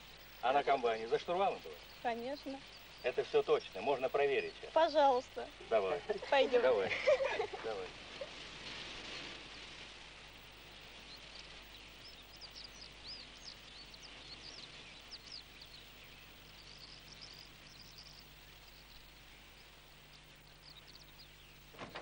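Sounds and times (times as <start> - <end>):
small birds chirping: 0.0 - 22.0
steady hiss: 0.0 - 22.0.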